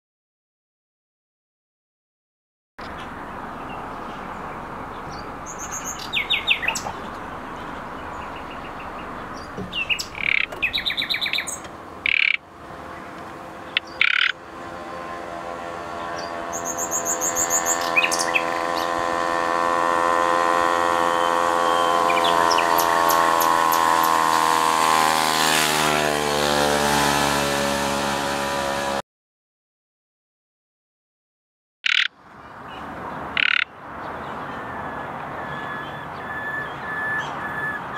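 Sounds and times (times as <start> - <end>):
engine drone passing: 2.8 - 29.0, 32.8 - 37.9
nightingale singing: 4.9 - 12.4, 13.0 - 14.4, 16.2 - 18.9, 31.9 - 32.1, 33.4 - 37.9.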